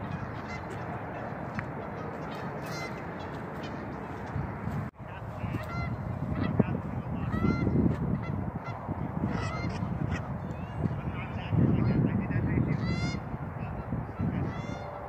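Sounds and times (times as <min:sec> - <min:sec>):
geese honking: 0:00.0 - 0:11.5, 0:12.6 - 0:13.3, 0:14.2 - 0:15.0
low rumbling noise: 0:00.0 - 0:15.0.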